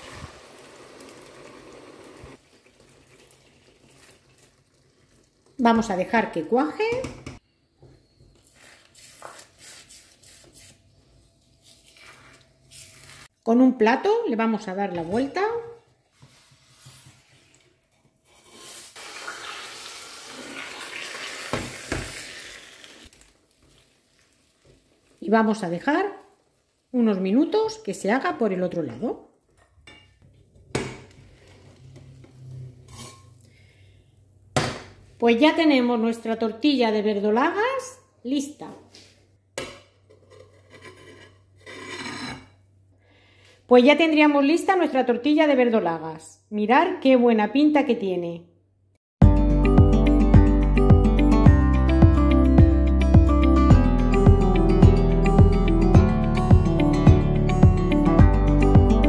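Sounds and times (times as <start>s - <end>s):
tortilla sizzling in a frying pan: 0.0s - 5.6s, 18.5s - 25.2s
spatula scraping: 8.4s - 13.3s, 31.2s - 33.3s, 40.1s - 42.6s.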